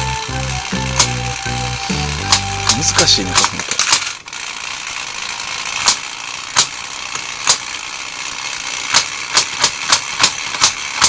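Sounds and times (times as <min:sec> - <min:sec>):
toy motor and gears whirring: 0:00.0 - 0:11.0
sharp mechanism clicks: 0:02.3 - 0:11.0.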